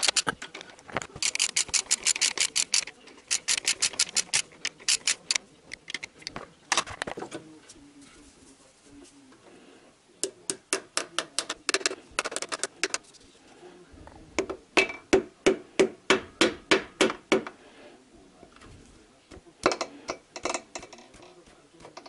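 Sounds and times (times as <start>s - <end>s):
hammer handle tapping piston: 19.3s - 22.0s.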